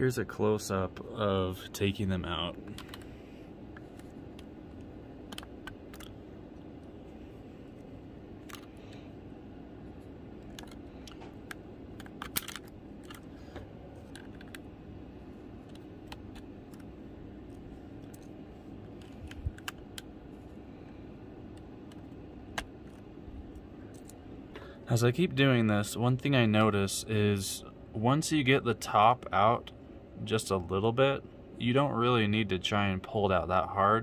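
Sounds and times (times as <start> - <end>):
low hum: 0.0 - 34.0.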